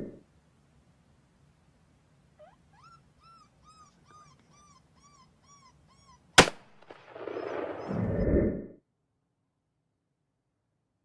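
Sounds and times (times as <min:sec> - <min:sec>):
gunshot: 0:06.4 - 0:08.1.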